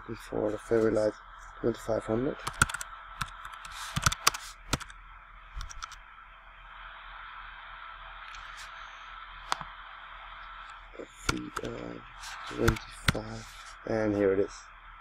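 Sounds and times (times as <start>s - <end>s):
low mains hum: 0.0s - 15.0s
microphone hiss: 0.0s - 15.0s
computer keyboard and mouse clicks: 2.4s - 4.9s, 5.6s - 6.0s, 11.3s - 11.7s, 12.6s - 13.3s.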